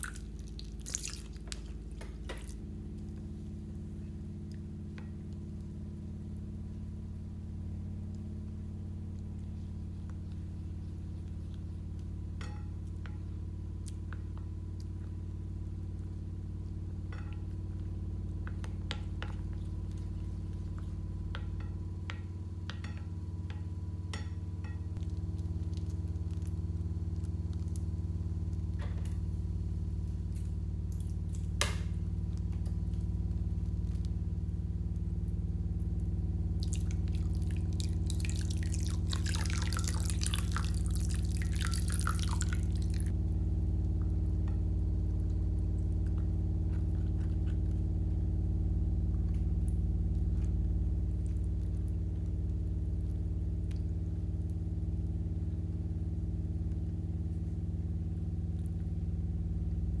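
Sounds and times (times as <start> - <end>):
slime squelching while stirred: 0.0 - 5.4, 36.0 - 43.2, 44.2 - 48.4
steady low hum: 0.0 - 60.0.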